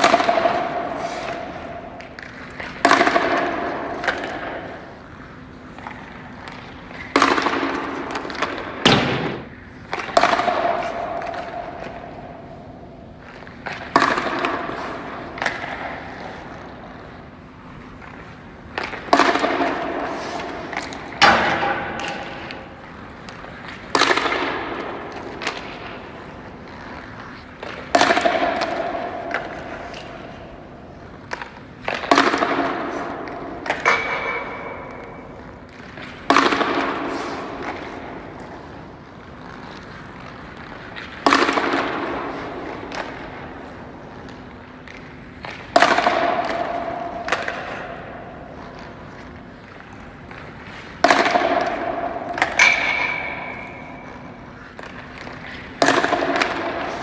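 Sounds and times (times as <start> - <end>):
hockey pucks cracking off sticks: 0.0 - 57.0.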